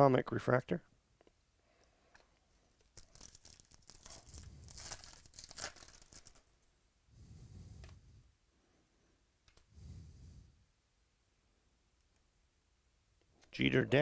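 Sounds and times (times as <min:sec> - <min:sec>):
wrapper tearing and crinkling: 0:02.9 - 0:06.5.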